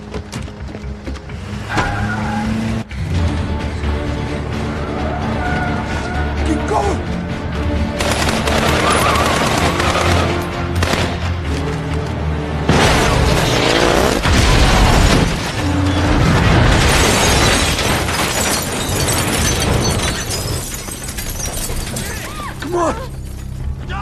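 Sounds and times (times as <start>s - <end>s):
dramatic music: 0.0s - 20.5s
explosions: 12.7s - 18.1s
car crash: 12.7s - 22.3s.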